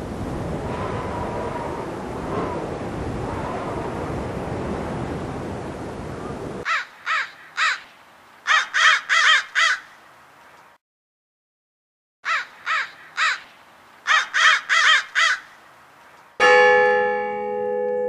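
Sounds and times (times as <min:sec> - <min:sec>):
wind and surf rushing: 0:00.0 - 0:06.7
bird calling: 0:06.2 - 0:10.0, 0:12.2 - 0:15.7.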